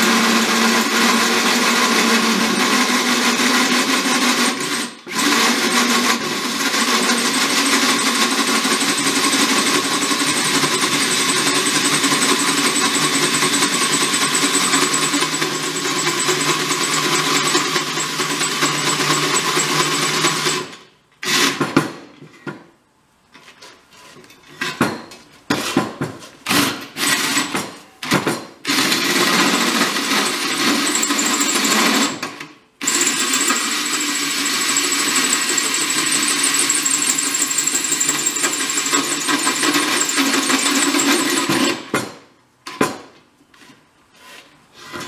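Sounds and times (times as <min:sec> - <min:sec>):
cordless drill boring into steel: 0:00.7 - 0:20.6, 0:30.0 - 0:32.2, 0:32.8 - 0:41.5.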